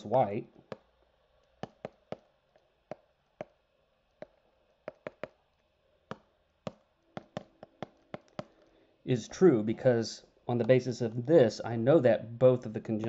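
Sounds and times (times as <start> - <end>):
stylus tapping on tablet screen: 0.6 - 8.7.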